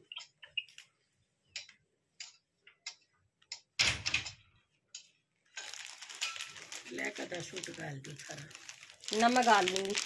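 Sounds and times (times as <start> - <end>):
dense crinkling rustle: 5.4 - 10.0.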